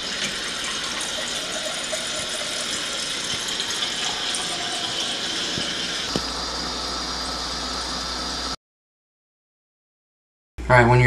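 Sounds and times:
water pouring into a glass: 0.0s - 7.9s.

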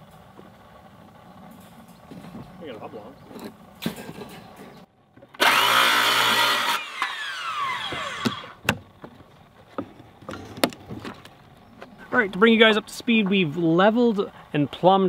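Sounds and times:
circular saw cutting boards: 5.3s - 8.6s
saw blade winding down: 5.4s - 8.6s.

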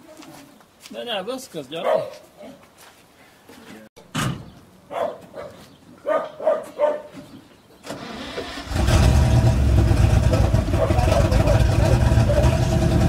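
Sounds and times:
dog barking: 1.8s - 2.2s, 4.9s - 7.2s, 10.7s - 12.5s
diesel truck engine starting: 7.8s - 13.0s.

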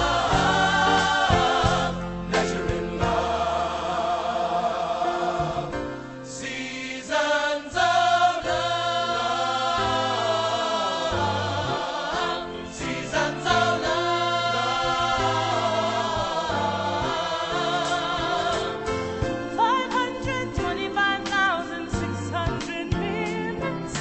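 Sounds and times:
bass line: 0.0s - 6.0s
music with singing voices: 0.0s - 24.0s.

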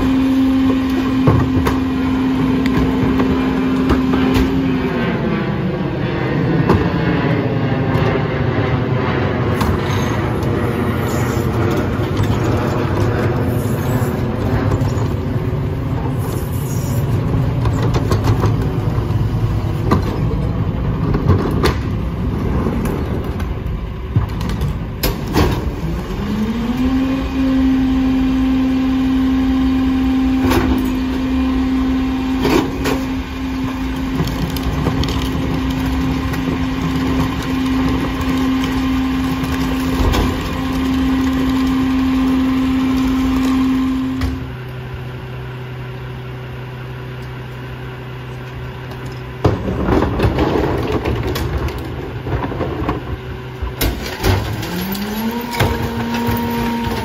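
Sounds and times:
hydraulic packer running: 0.0s - 5.8s, 9.5s - 57.0s
garbage truck diesel engine: 0.0s - 57.0s
plastic carts clanking: 32.4s - 44.4s, 49.0s - 53.1s, 53.8s - 57.0s.

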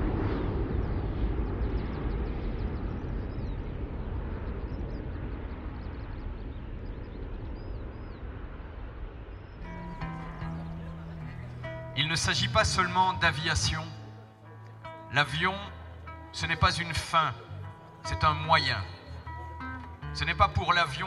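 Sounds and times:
wind rush on microphone: 0.0s - 9.6s
ultralight aircraft engine: 0.0s - 10.0s.

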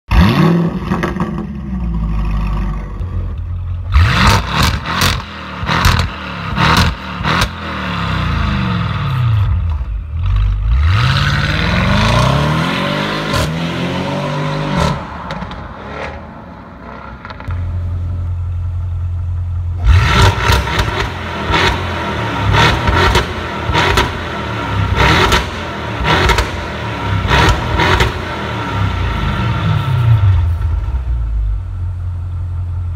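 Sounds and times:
car engine revving: 0.1s - 31.1s
exhaust cracks: 14.6s - 29.6s.

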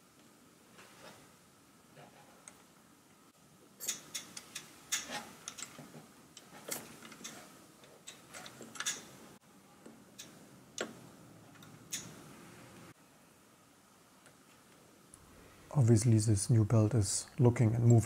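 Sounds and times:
fingers clicking small metal parts: 8.0s - 9.1s.

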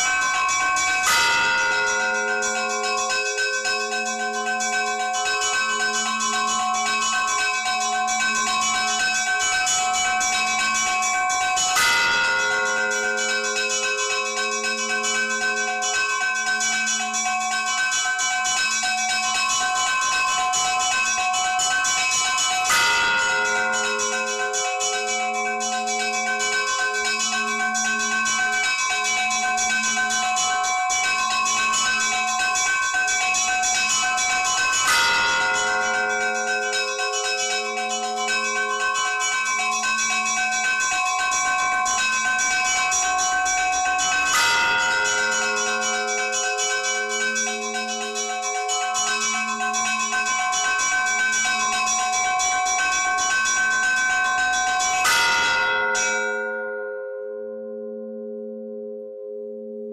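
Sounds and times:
small bells chiming: 0.0s - 57.2s
low bell ringing: 22.1s - 58.3s.

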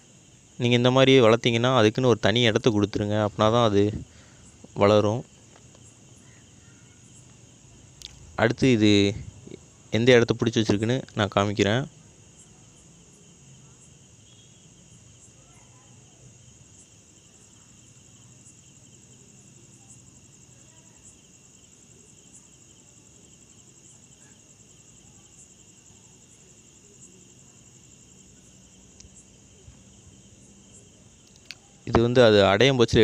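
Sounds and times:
crickets trilling: 0.0s - 33.0s
faint ticks: 28.9s - 29.9s, 31.2s - 32.0s.

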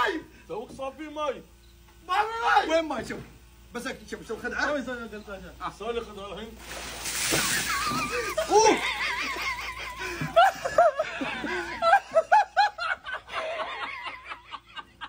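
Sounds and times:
water splashing down: 6.6s - 8.4s
men laughing: 7.3s - 15.0s.

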